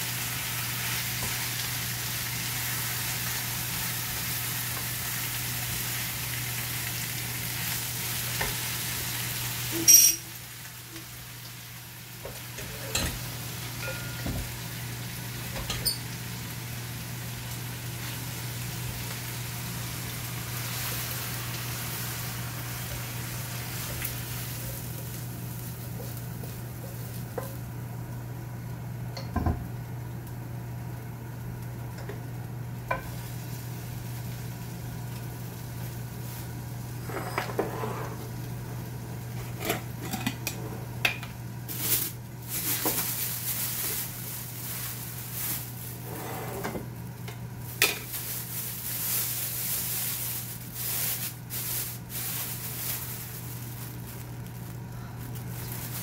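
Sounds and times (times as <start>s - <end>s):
plastic bag rustling: 33.1s - 37.1s, 41.7s - 56.0s
wooden spatula scraping a pan: 37.0s - 38.3s.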